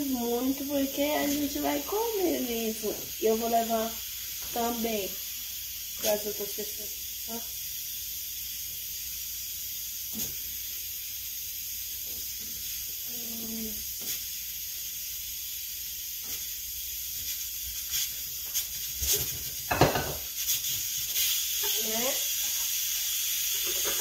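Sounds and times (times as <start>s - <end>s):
pressure cooker hissing: 0.0s - 24.0s.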